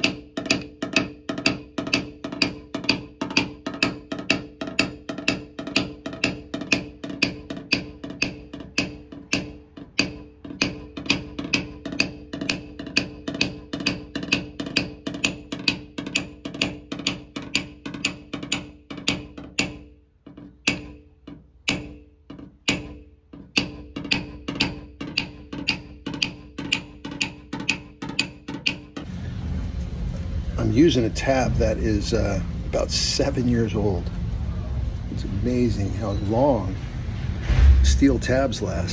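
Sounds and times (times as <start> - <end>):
hammer tapping on metal: 0.0 - 29.1.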